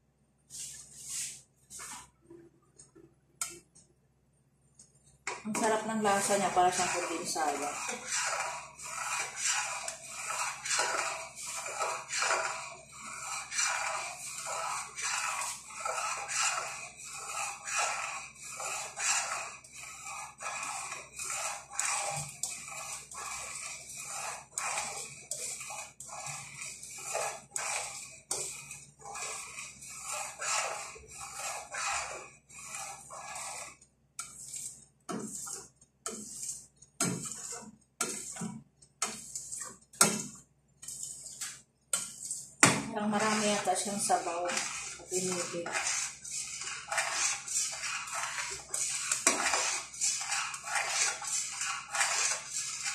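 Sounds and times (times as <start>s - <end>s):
metal spoon scraping a pot: 5.3s - 52.9s.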